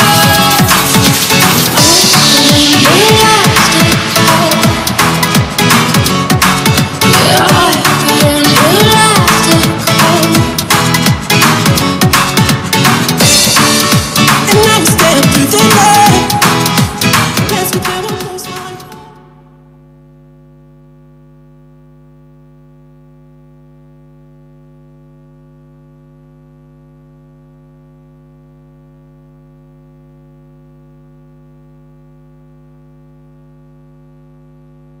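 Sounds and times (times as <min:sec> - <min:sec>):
dance music: 0:00.0 - 0:19.3.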